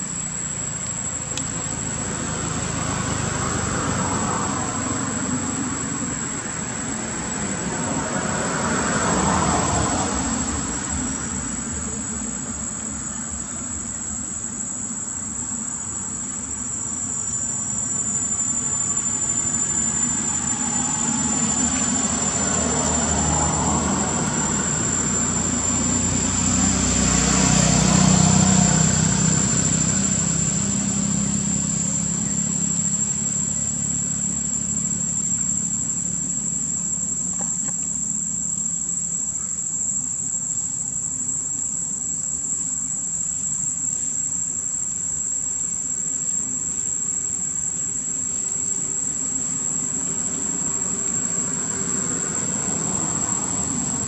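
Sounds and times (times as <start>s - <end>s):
insects droning: 0.0s - 54.0s
passing vehicle engine: 0.2s - 54.0s.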